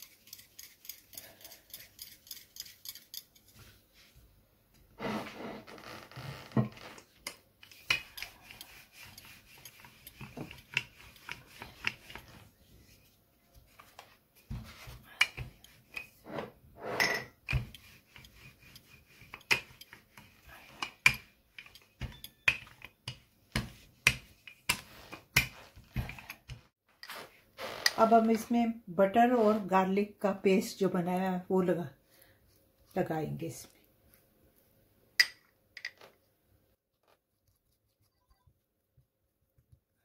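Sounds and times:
dough rubbing on counter: 0:07.8 - 0:16.0, 0:17.5 - 0:20.9
utensils and dishes knocking: 0:20.8 - 0:24.6.

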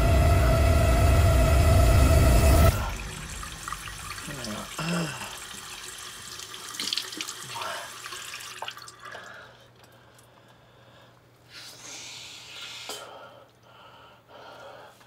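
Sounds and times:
tap water running into sink: 0:02.8 - 0:09.3.

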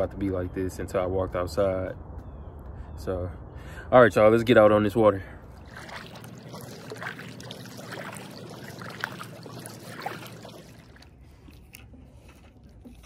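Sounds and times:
water splashes and drips: 0:05.4 - 0:13.0
paddle pulling through water: 0:05.5 - 0:13.0.

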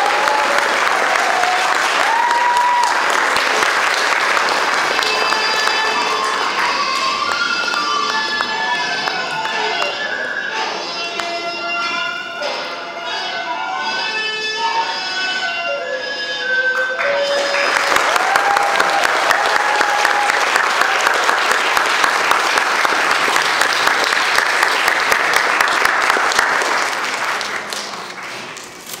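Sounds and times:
audience applauding: 0:00.0 - 0:09.9, 0:16.9 - 0:28.7.

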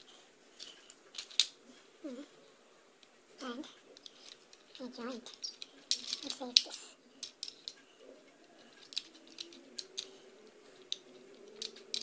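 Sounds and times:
toy train clicking on plastic track: 0:04.0 - 0:07.8, 0:08.6 - 0:10.2, 0:10.8 - 0:12.0.

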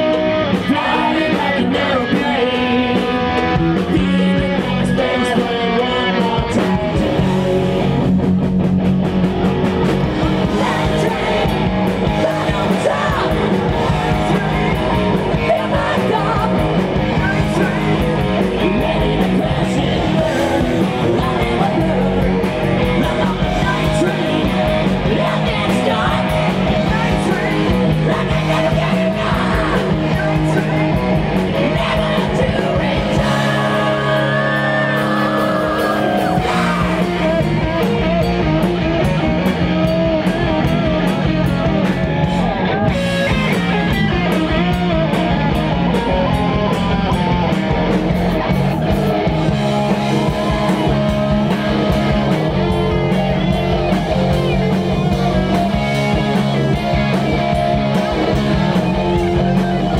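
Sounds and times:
man singing: 0:00.0 - 0:07.8, 0:10.2 - 0:37.8
bass guitar: 0:00.0 - 0:59.9
distorted electric guitar: 0:00.0 - 0:59.9
drum kit: 0:00.0 - 0:59.9.

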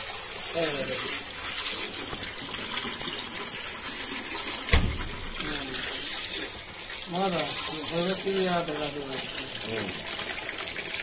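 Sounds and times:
water pouring into a tub: 0:00.0 - 0:11.0
sharp thump: 0:04.7 - 0:05.2.

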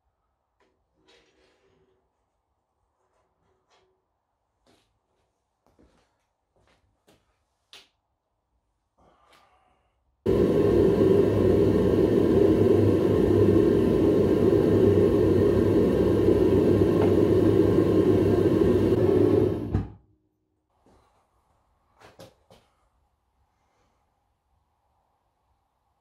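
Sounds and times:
gas burner rumbling: 0:10.3 - 0:20.0.

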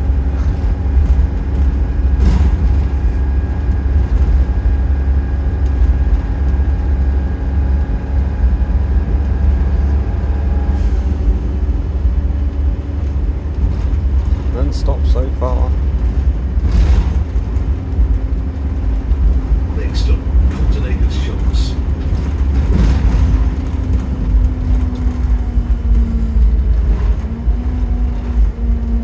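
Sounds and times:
bus engine and road rumble: 0:00.0 - 0:29.0.

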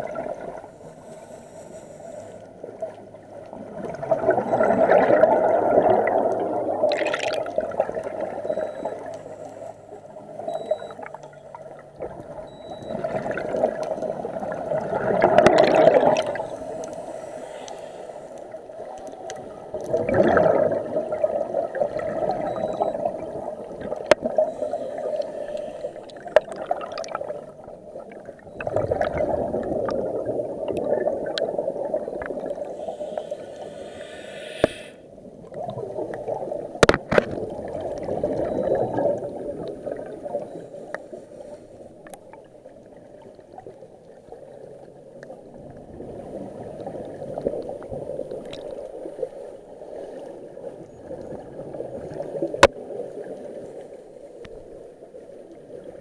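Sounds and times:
underwater rushing and gurgling: 0:00.0 - 0:56.0.

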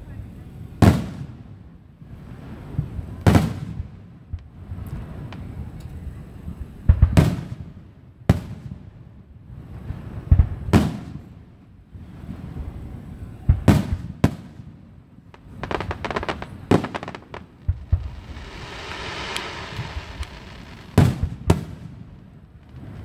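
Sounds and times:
fireworks bangs with echo: 0:00.8 - 0:01.4, 0:02.7 - 0:05.6, 0:06.8 - 0:08.8, 0:13.5 - 0:23.0
fireworks crackling pops: 0:15.3 - 0:23.0.

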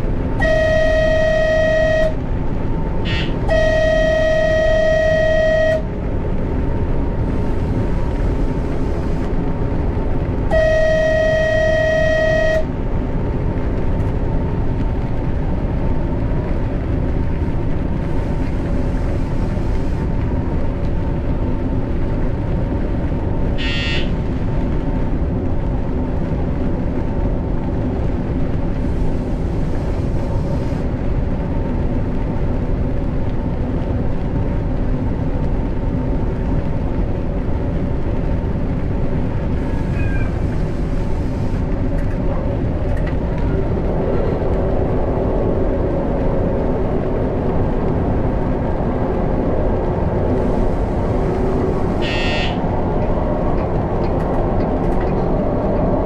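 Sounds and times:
train running: 0:00.0 - 0:56.0
train horn blasts: 0:00.3 - 0:02.4, 0:03.0 - 0:06.0, 0:10.5 - 0:12.8, 0:23.6 - 0:24.3, 0:50.4 - 0:52.8.

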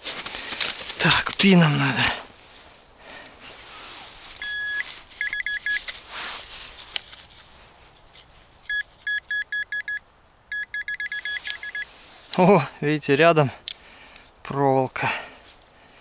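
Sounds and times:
soil rustling: 0:00.0 - 0:09.4
pinpointer beeping: 0:04.4 - 0:05.8, 0:08.7 - 0:11.9.

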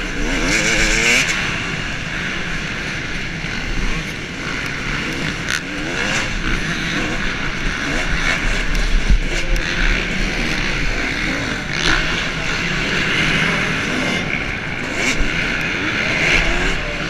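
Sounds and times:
motocross bike engine revving: 0:00.0 - 0:17.0
wind rushing over microphone: 0:05.3 - 0:17.0.

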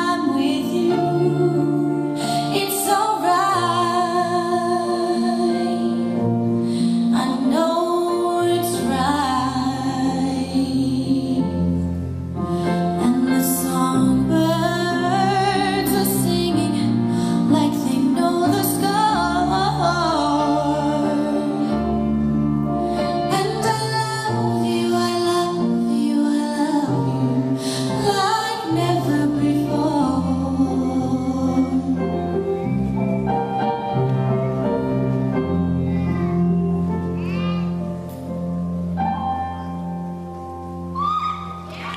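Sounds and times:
person singing: 0:00.0 - 0:11.8
woman singing slow song: 0:00.0 - 0:21.9, 0:23.0 - 0:32.5.

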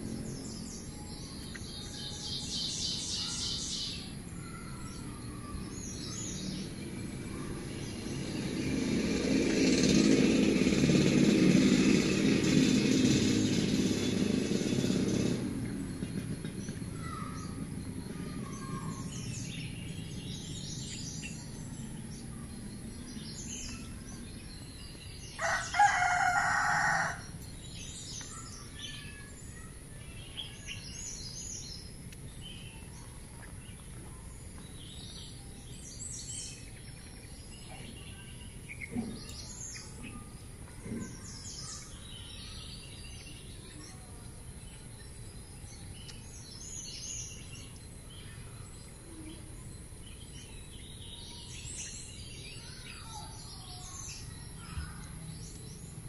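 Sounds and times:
bird chirps: 0:00.0 - 0:10.3, 0:14.1 - 0:56.0
rooster crowing: 0:25.4 - 0:27.3.

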